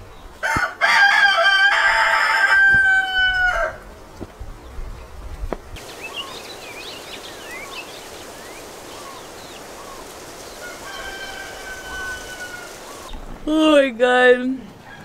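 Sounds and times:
rooster crowing: 0:00.4 - 0:03.8, 0:09.8 - 0:13.1, 0:14.8 - 0:15.0
steady hiss: 0:05.7 - 0:14.0
small birds chirping: 0:05.8 - 0:13.2.

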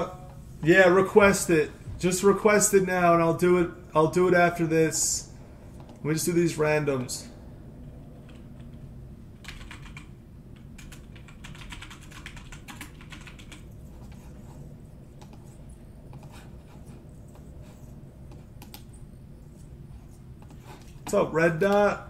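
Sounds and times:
low steady hum: 0:00.0 - 0:22.0
computer keyboard typing: 0:08.2 - 0:08.8, 0:09.4 - 0:19.6.

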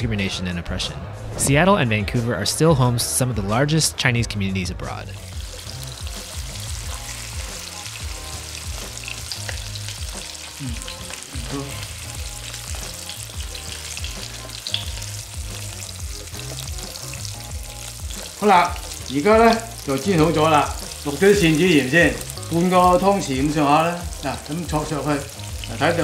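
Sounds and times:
fish sizzling in hot oil: 0:05.2 - 0:26.0.

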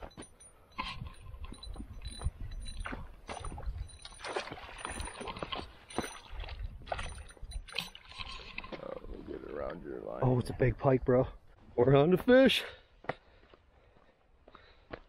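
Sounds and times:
wind rumble on microphone: 0:00.8 - 0:04.1
fish thrashing and splashing: 0:02.6 - 0:09.2.

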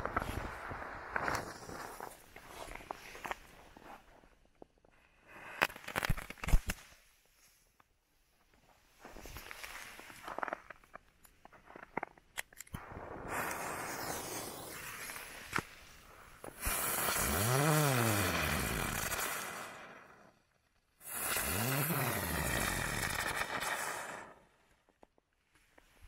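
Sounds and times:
firework hissing: 0:12.8 - 0:20.4, 0:21.0 - 0:24.6.

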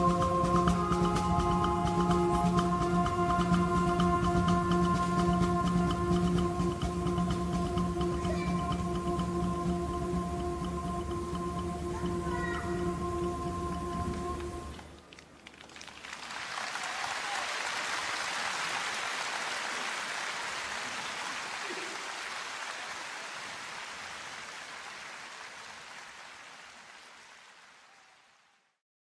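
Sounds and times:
rain hissing: 0:16.0 - 0:28.6.

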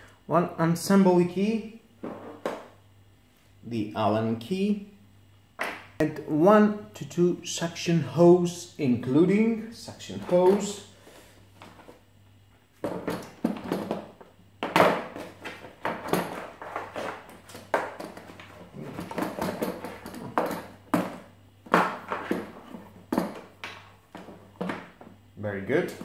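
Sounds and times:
knocks and scrapes on plastic case: 0:12.8 - 0:24.9.

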